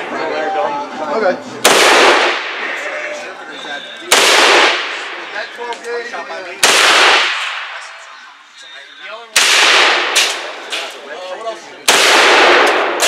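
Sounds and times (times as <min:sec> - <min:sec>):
rifle shots with echo: 0:01.6 - 0:02.9, 0:04.1 - 0:05.5, 0:06.6 - 0:08.0, 0:09.4 - 0:11.0, 0:11.9 - 0:13.0.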